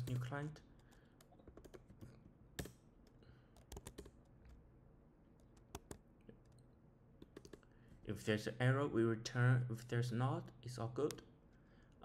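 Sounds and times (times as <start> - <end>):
keyboard keystrokes: 3.6 - 4.1.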